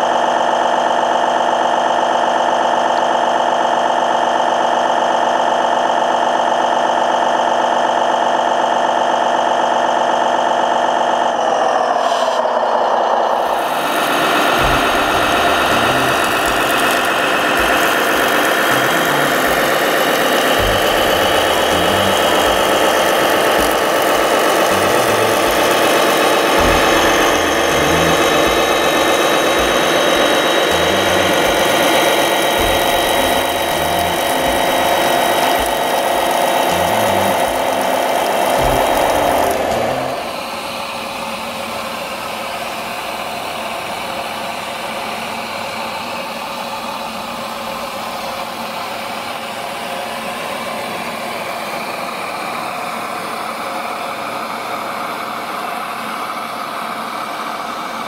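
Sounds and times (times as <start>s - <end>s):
toy fire truck motor whining: 0.0s - 58.0s
water cannon spraying: 13.4s - 43.1s.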